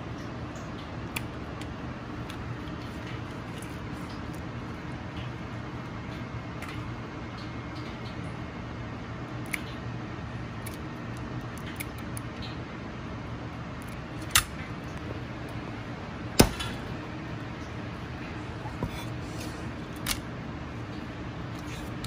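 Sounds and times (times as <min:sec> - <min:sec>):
shell snapping: 0:16.4 - 0:16.8.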